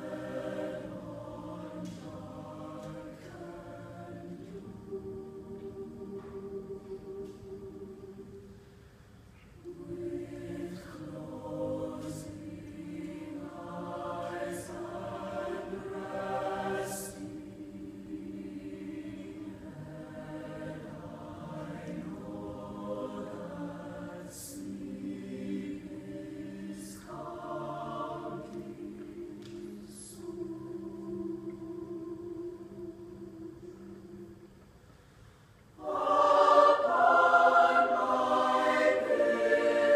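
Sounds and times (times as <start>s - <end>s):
choir singing: 0.0s - 8.9s, 9.6s - 34.9s, 35.7s - 39.9s.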